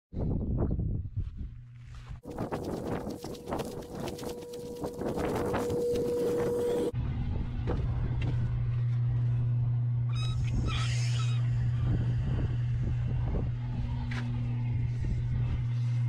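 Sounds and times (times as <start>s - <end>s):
steady low hum: 1.3s - 16.0s.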